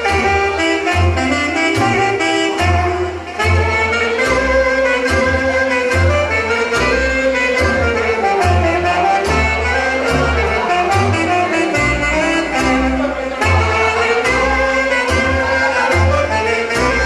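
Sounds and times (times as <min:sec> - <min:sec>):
wind instrument melody: 0:00.0 - 0:17.0.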